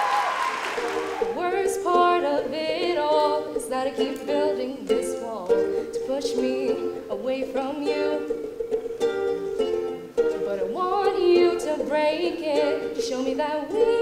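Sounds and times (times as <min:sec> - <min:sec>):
strummed ukulele: 0:00.0 - 0:14.0
woman singing slow melody: 0:01.3 - 0:08.3, 0:10.3 - 0:14.0.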